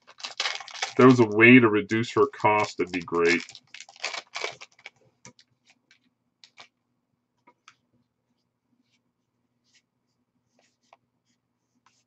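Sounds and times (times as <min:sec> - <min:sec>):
trading cards rustling and clicking: 0:00.0 - 0:06.7.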